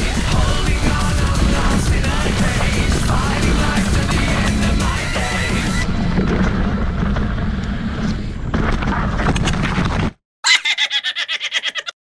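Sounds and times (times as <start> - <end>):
rapidly pulsing sound: 0.0 - 8.5
wind on microphone: 0.0 - 9.6
bike rumble with rattling knocks: 0.4 - 10.2.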